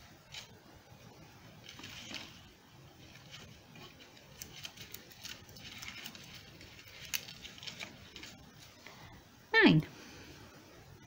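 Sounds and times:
ribbon rustling: 0.2 - 8.8
dry twigs clicking together: 3.2 - 8.4.

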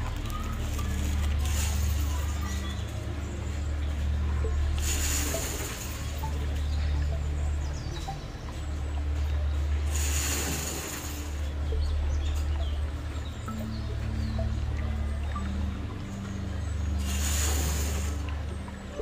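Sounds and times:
soft background music: 0.0 - 19.0
hissing swell: 4.6 - 7.1, 17.0 - 18.4.

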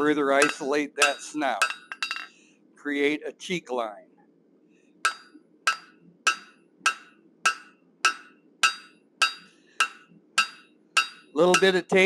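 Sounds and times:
hammer striking steel on anvil: 0.0 - 2.3, 5.0 - 11.8.

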